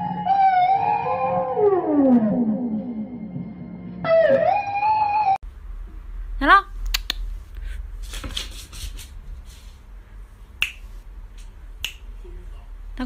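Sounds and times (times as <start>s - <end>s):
sharp snapping clicks: 6.8s - 7.2s, 11.8s - 12.0s.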